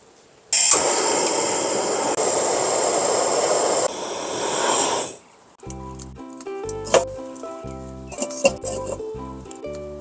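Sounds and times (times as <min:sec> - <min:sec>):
gas burner flame rushing: 0:00.6 - 0:05.3.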